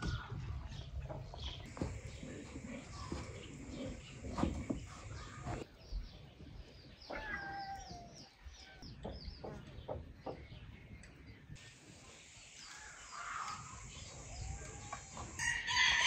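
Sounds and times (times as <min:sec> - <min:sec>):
small birds chirping: 0:00.0 - 0:15.5
scattered knocks: 0:08.9 - 0:10.5.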